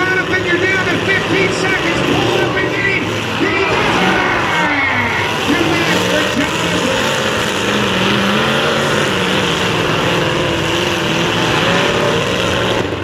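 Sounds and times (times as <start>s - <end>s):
truck engines revving: 0.0s - 13.0s.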